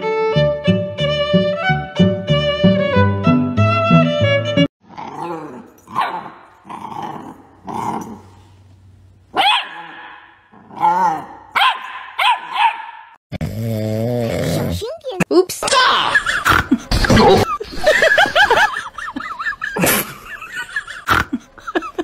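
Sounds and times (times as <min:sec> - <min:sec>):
violin music: 0:00.0 - 0:04.7
puppy barking and growling: 0:04.8 - 0:08.4, 0:09.3 - 0:13.2.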